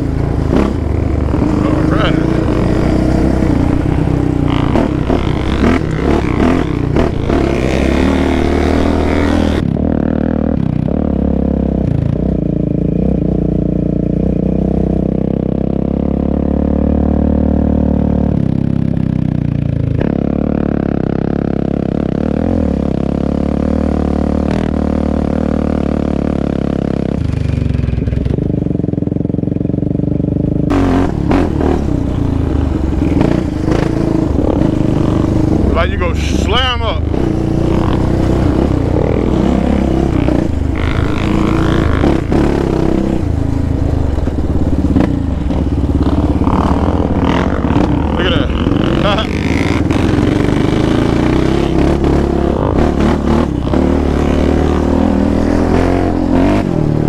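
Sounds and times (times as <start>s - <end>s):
quad bike engine under load: 0.0s - 11.0s, 27.2s - 57.0s.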